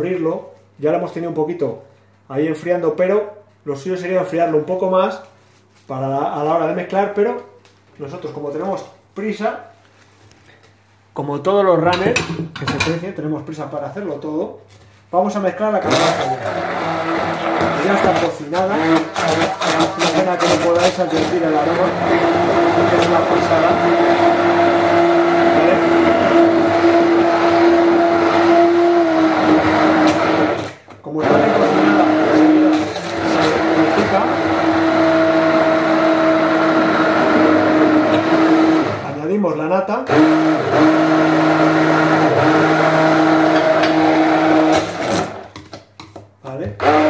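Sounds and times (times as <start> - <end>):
electric hand blender whining: 15.8 - 39.1, 40.1 - 45.5, 46.8 - 47.0.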